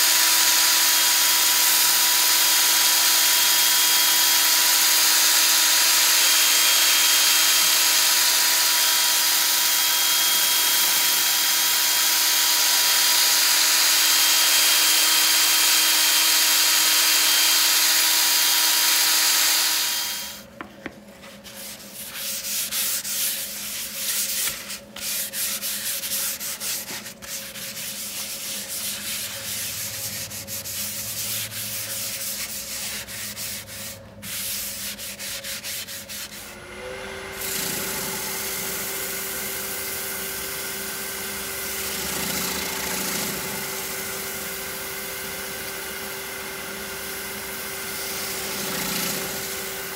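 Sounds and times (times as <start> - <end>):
sandpaper sanding wood: 0.0 - 20.4, 21.3 - 36.5.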